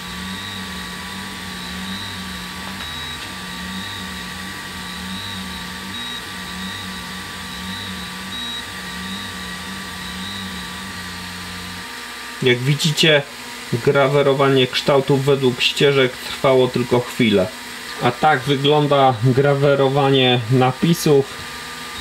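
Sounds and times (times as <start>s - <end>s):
stepper motors whining: 0.0s - 22.0s.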